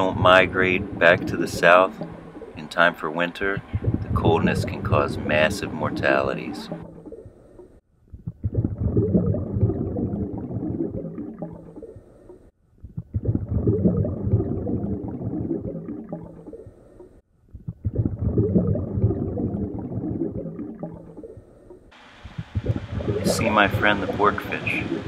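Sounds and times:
underwater rushing rumble: 0:00.0 - 0:06.9, 0:22.0 - 0:25.0.

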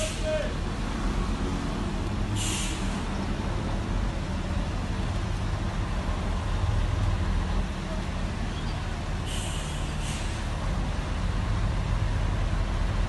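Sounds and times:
road traffic rumble: 0:00.0 - 0:13.0
short hiss: 0:02.4 - 0:03.0, 0:09.3 - 0:10.4.

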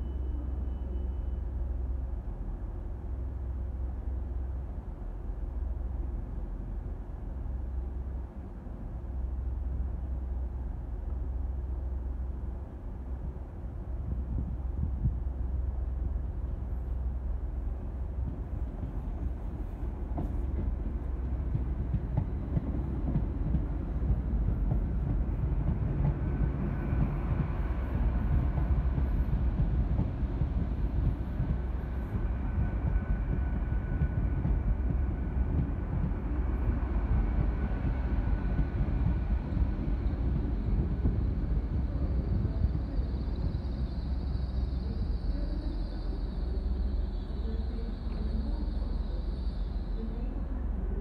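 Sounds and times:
faint high whine: 0:00.0 - 0:02.2, 0:36.6 - 0:51.0
train rumbling: 0:00.0 - 0:51.0.

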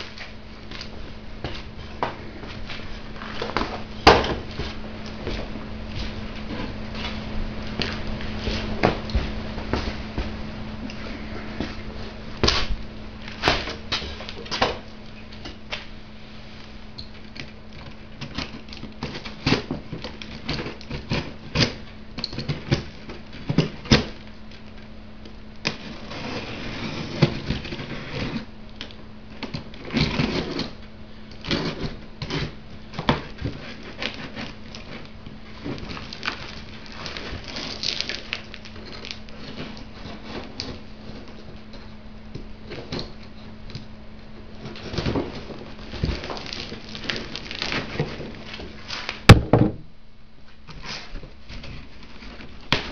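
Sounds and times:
low electrical hum: 0:00.0 - 0:52.9
cardboard ripping: 0:31.5 - 0:40.8, 0:44.7 - 0:49.3
packing tape tearing: 0:33.1 - 0:40.8, 0:44.7 - 0:49.3.

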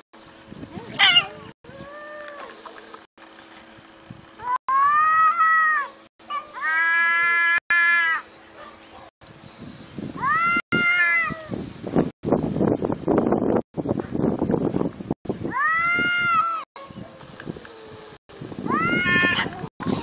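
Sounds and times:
cats yowling: 0:10.2 - 0:11.5.

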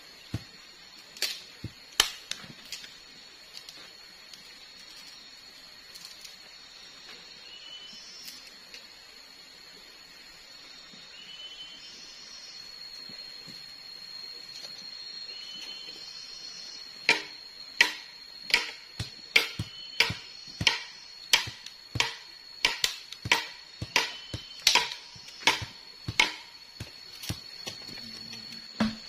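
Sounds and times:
palm fronds being chopped: 0:00.2 - 0:02.9, 0:17.0 - 0:28.0, 0:28.8 - 0:29.0.

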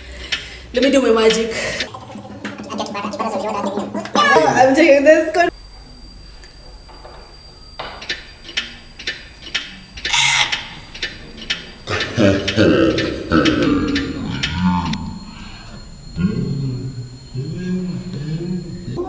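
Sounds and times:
clock ticking: 0:00.1 - 0:04.5, 0:08.0 - 0:15.1
person speaking: 0:00.8 - 0:05.5.

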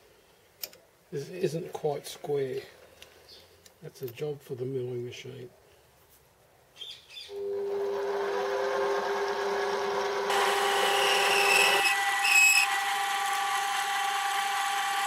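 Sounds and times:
lathe motor running: 0:07.4 - 0:15.0
lathe tool squealing: 0:10.3 - 0:15.0.

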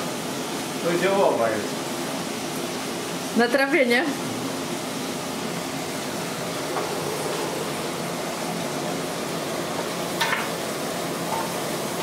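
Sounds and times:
vegetables frying in a pot: 0:00.0 - 0:12.0.

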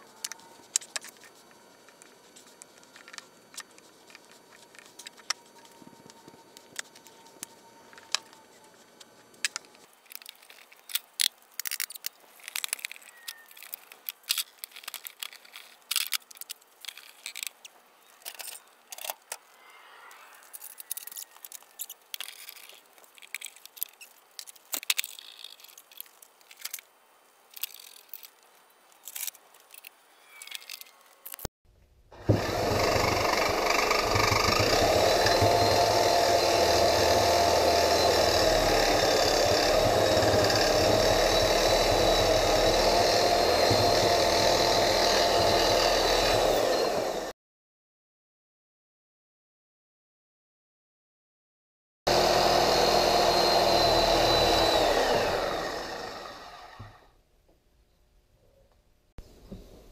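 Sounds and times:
brush scraping glue on wood: 0:32.2 - 0:46.4.

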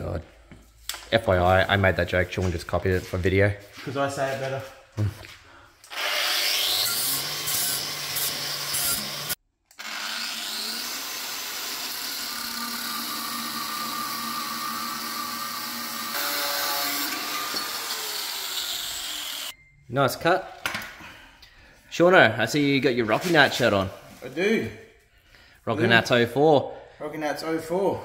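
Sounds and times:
power tool cutting sheet metal: 0:05.9 - 0:19.6.

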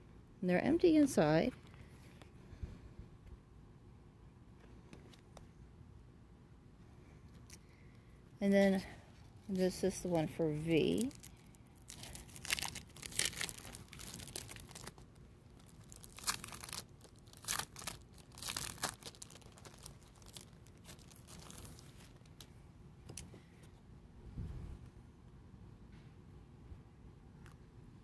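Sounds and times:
clear plastic crinkling: 0:09.5 - 0:22.5.

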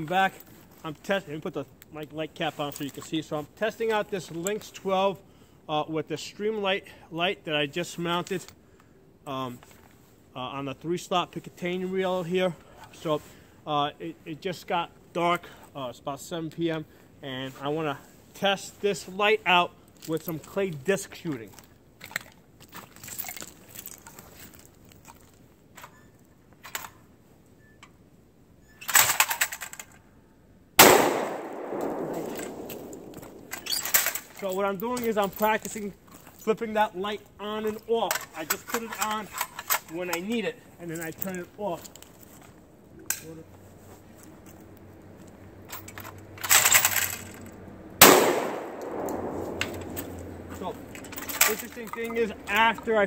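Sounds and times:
shotgun handling clicks: 0:30.8 - 0:34.4, 0:48.0 - 0:51.6.

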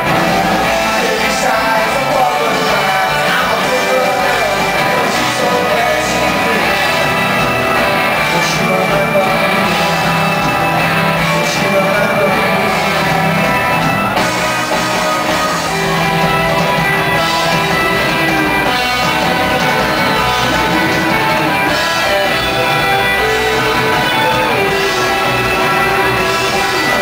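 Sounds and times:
rock band playing live: 0:00.0 - 0:27.0.

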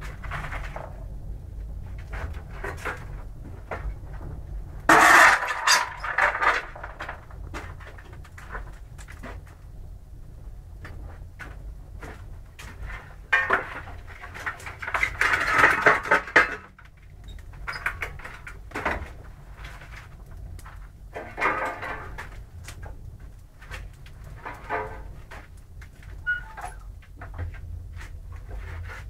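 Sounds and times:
low steady rumble: 0:00.0 - 0:29.0
metal clanking and scraping: 0:04.9 - 0:08.6, 0:12.7 - 0:16.8, 0:21.2 - 0:22.4, 0:24.4 - 0:27.4.

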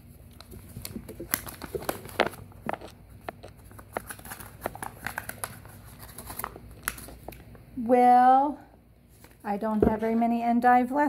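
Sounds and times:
paper packet crinkling: 0:00.3 - 0:07.4.

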